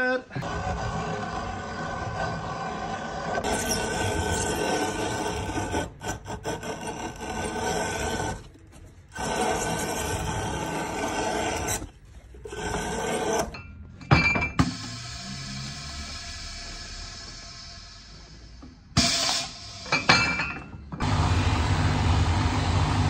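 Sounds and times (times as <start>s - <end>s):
edge-trimming machine cutting leather: 0.4s - 13.6s.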